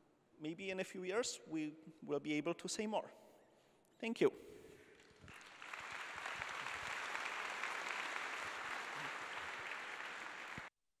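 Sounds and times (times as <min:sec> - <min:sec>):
audience applauding: 0:05.0 - 0:10.7.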